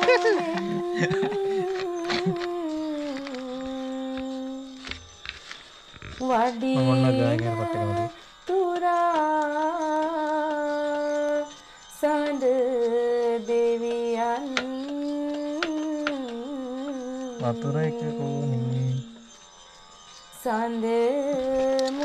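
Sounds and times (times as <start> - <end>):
person singing held notes: 0.0 - 2.6.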